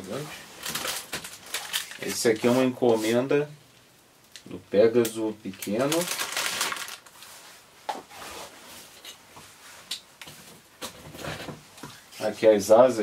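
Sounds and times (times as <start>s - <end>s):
packaging rustling: 0.6s - 2.8s, 5.5s - 7.4s.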